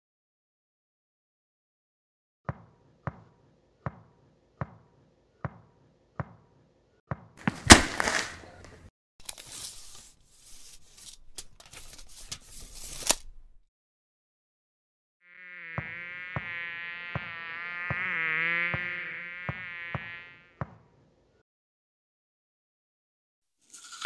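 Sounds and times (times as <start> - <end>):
cartoon knocking footsteps: 7.1 - 8.8
rattling and rummaging: 7.4 - 8.8
heavy thump of bin set down: 7.5 - 8.4.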